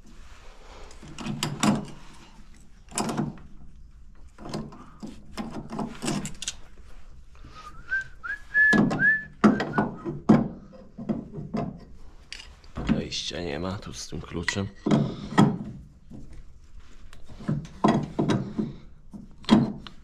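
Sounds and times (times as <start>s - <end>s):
person whistling: 7.6s - 10.0s.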